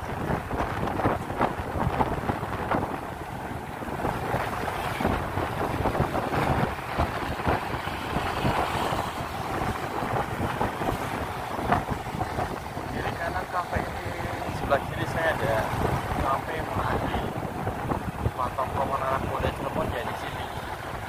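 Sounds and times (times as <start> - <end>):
motorcycle engine and road rumble: 0.0 - 21.0
wind buffeting microphone: 0.0 - 21.0.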